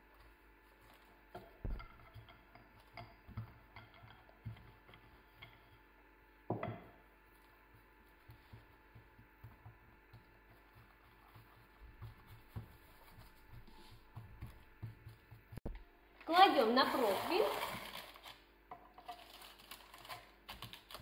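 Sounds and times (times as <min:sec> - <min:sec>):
hands tapping and rustling dough: 0:06.5 - 0:15.8.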